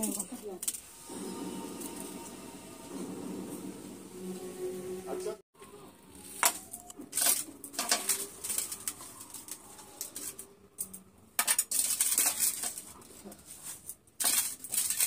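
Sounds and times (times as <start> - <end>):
crisp cabbage leaves rustling: 6.1 - 10.4.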